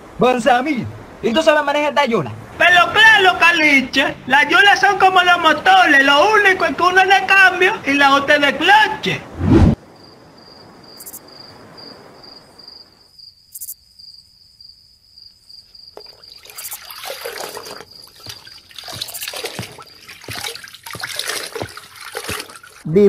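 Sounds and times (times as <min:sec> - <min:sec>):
water sloshing in a bucket: 0:15.9 - 0:22.9.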